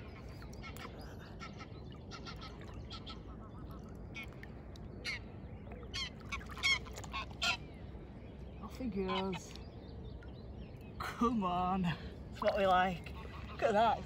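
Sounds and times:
waterfowl calling: 0:00.0 - 0:08.0, 0:09.0 - 0:09.6, 0:12.4 - 0:14.0
low background rumble: 0:00.0 - 0:14.0.

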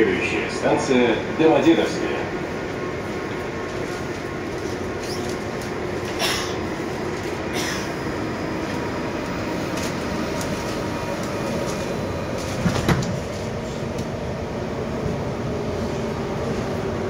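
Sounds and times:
metro car hum: 0:00.0 - 0:17.0
sliding doors shutting: 0:12.3 - 0:13.5.

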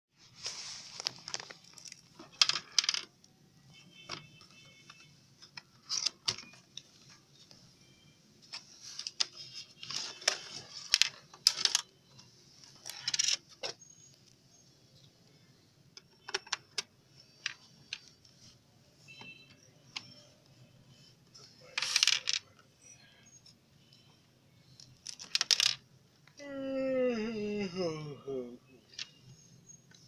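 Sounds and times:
cardboard and plastic rustling: 0:00.3 - 0:02.8.

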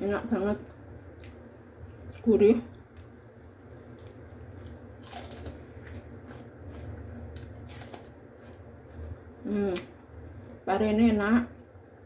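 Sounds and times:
low steady hum: 0:00.0 - 0:12.0
person chewing crunchy vegetable: 0:01.1 - 0:10.6.

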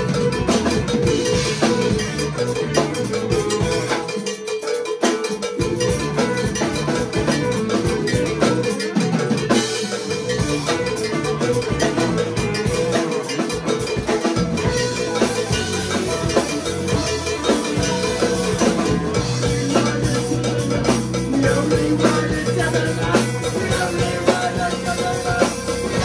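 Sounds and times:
live band playing post-punk: 0:00.0 - 0:26.0.

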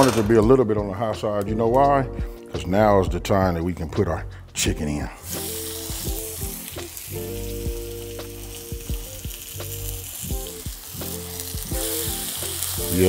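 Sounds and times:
chicken sizzling in oil: 0:05.2 - 0:13.0.

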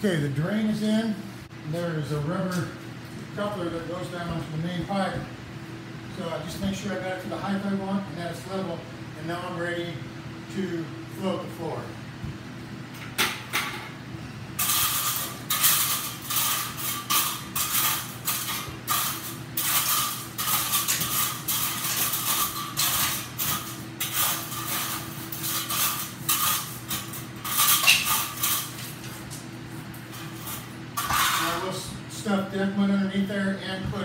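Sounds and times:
trowel scraping concrete: 0:14.6 - 0:29.0, 0:30.2 - 0:31.7.

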